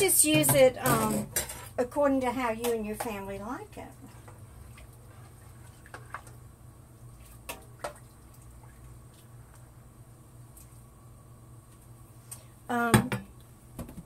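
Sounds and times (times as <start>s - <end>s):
low steady hum: 0.0s - 14.0s
liquid sloshing in a pot: 3.0s - 9.8s.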